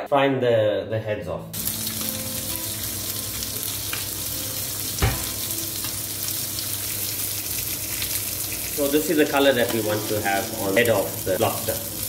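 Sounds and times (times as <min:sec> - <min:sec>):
frying in oil sizzle: 0:01.6 - 0:12.0
single knock: 0:05.0 - 0:05.3.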